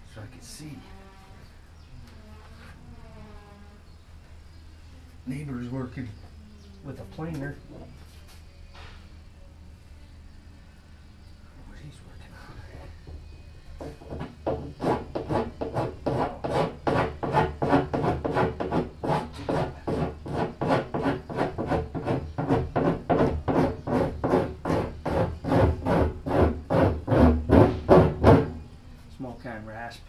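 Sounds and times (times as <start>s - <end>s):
rasp file scraping plastic: 13.8s - 28.6s.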